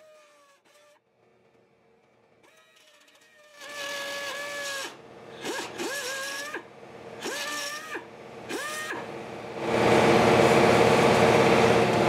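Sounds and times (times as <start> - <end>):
belt sander grinding steel: 2.4 - 12.0.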